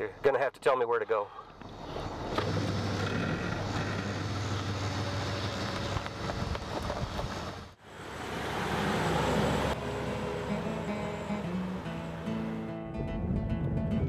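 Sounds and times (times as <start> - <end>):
engine humming: 1.5 - 13.0
vehicle pulling away and driving past: 2.1 - 12.9.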